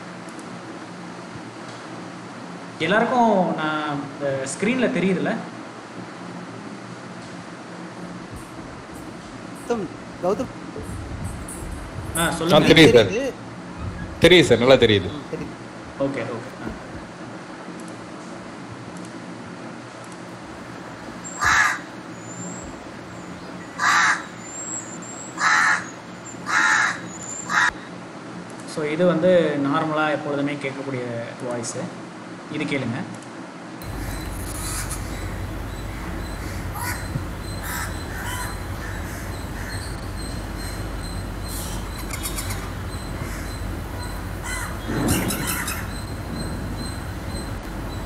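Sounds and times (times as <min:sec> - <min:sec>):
crow cawing: 0:21.2 - 0:27.8, 0:33.8 - 0:48.0.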